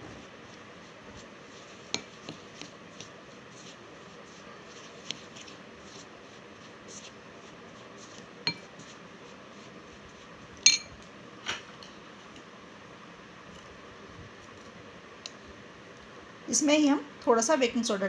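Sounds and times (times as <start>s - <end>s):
metal spoon clinking on glass bowl: 10.6s - 11.0s.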